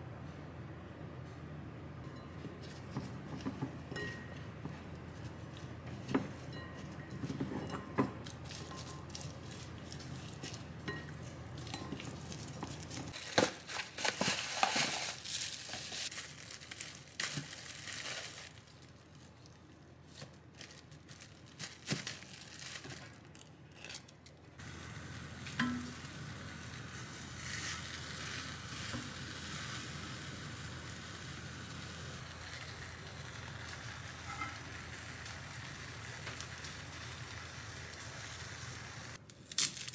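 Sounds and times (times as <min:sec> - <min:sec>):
clinks against glass: 0:03.9 - 0:04.4, 0:06.4 - 0:09.1
plastic bag crinkling: 0:11.5 - 0:24.4
faint sizzle in a pan: 0:24.6 - 0:39.2.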